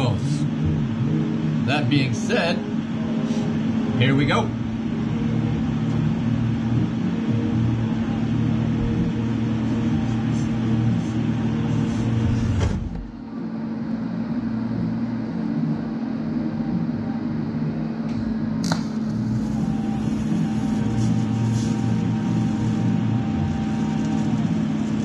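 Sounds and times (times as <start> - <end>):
welding arc strike crack: 18.6 - 19.4
welder buzz and hiss: 18.6 - 25.0.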